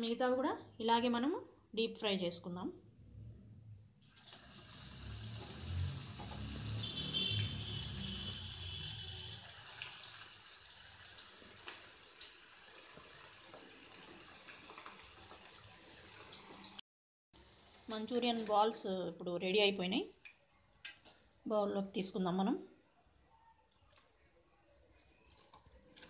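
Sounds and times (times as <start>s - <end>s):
food deep-frying in oil: 4.0s - 16.8s, 17.4s - 21.5s
oil popping and crackling: 12.8s - 16.5s, 25.2s - 26.0s.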